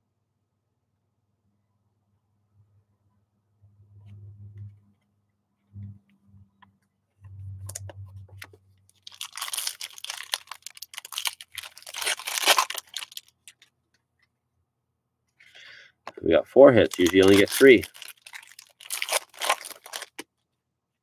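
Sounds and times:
plastic wrapper crinkling: 8.9 - 13.7, 16.7 - 20.3.

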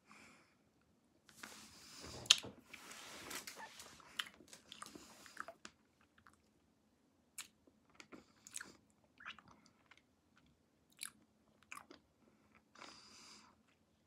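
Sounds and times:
faint chewing of hard candy: 3.5 - 6.6, 7.3 - 14.0.

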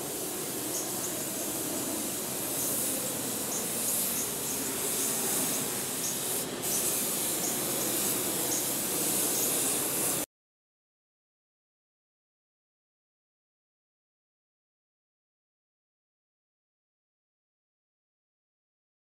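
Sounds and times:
paint spray gun hissing: 0.0 - 10.3.

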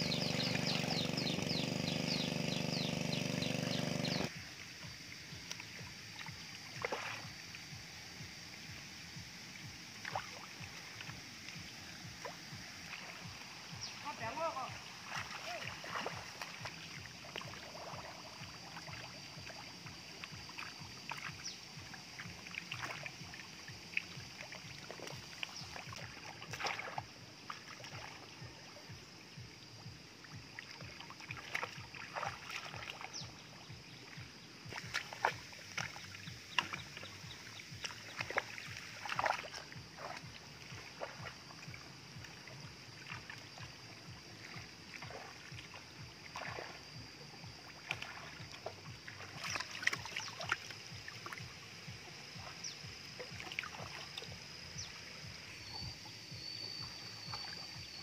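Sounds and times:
boots splashing through water: 5.1 - 7.9, 9.6 - 58.0
basket scooping through water: 34.6 - 43.7, 47.7 - 51.5.

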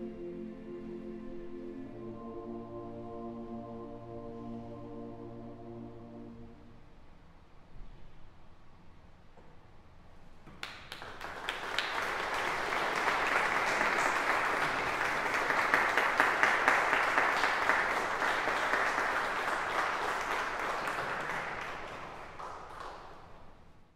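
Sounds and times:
audience applauding: 10.6 - 23.4.

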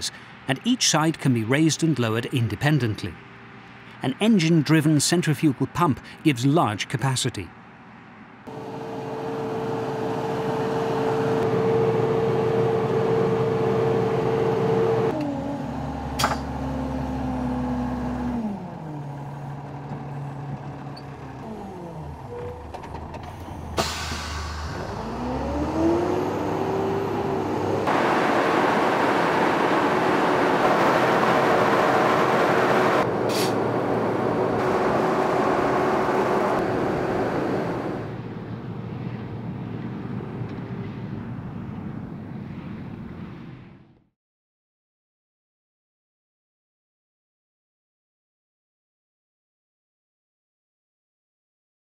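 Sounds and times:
diesel engine running under load: 8.5 - 41.6.

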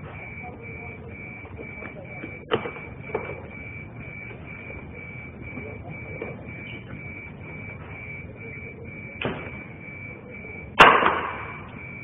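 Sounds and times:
lift alarm beeping: 0.0 - 12.0
loud bang: 10.8 - 11.7.

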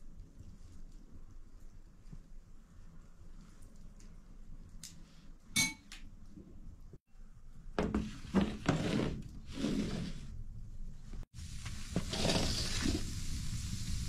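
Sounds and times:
sharp metal clink: 5.6 - 5.9.

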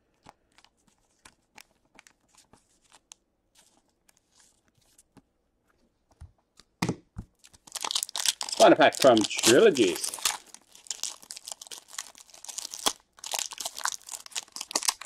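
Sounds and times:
foil pack crinkling: 7.4 - 15.0
trading cards clicking and rustling: 7.4 - 15.0.

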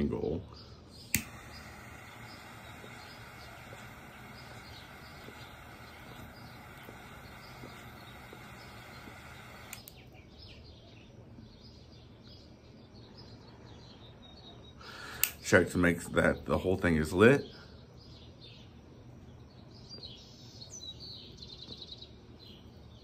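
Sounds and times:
torch lighter hissing: 0.9 - 10.0.

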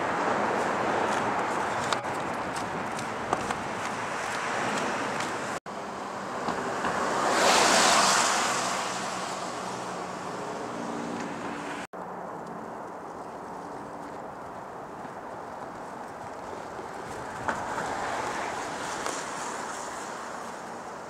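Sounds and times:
traffic: 0.0 - 21.0
wind: 0.0 - 21.0
vehicle passing on steel bridge: 3.6 - 11.9.

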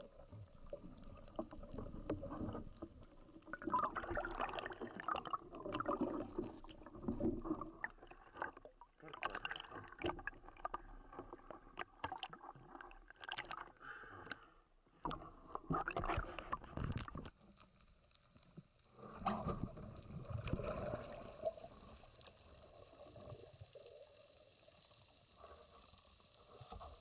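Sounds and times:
sea water sloshing and splashing: 0.0 - 14.3, 15.0 - 17.4, 19.0 - 23.9.

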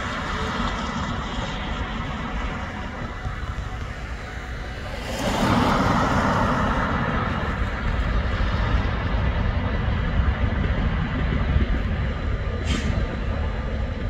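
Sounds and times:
steady low traffic rumble: 0.0 - 14.0
vehicle passing close by: 2.5 - 8.8.

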